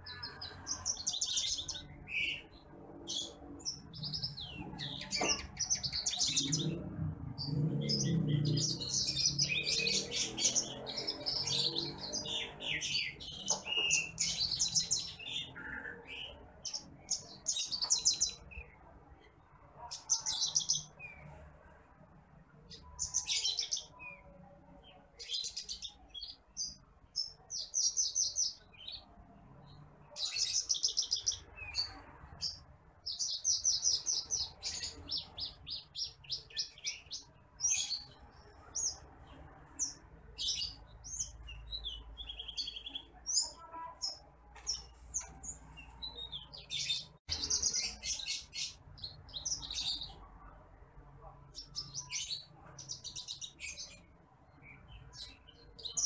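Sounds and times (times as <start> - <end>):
songbird chirping and trilling: 0.0 - 56.0.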